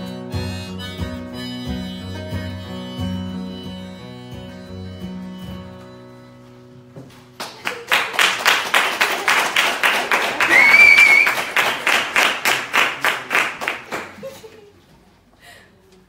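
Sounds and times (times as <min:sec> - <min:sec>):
acoustic guitar and harmonica: 0:00.0 - 0:07.0
people clapping: 0:07.3 - 0:14.6
approving whistle: 0:10.5 - 0:11.4.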